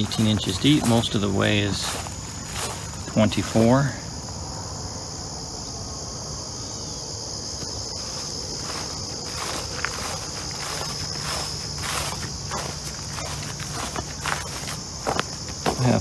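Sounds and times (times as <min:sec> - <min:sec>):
footsteps on gravel: 0:00.0 - 0:04.0, 0:07.6 - 0:16.0
crickets chirping: 0:00.0 - 0:16.0.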